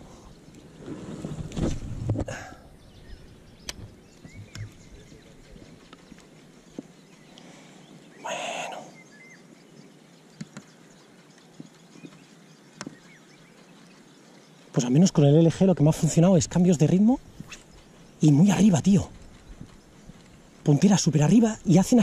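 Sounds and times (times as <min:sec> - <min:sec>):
faint bird chirps: 0:02.3 - 0:22.0
small scattered clicks: 0:03.6 - 0:07.6, 0:10.0 - 0:14.8, 0:18.8 - 0:21.6.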